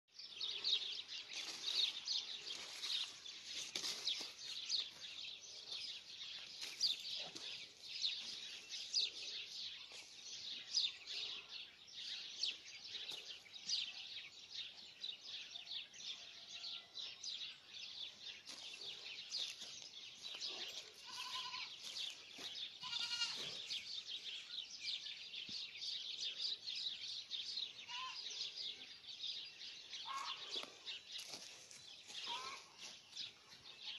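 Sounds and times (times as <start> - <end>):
goat bleating: 21.0 - 21.8, 22.8 - 23.7.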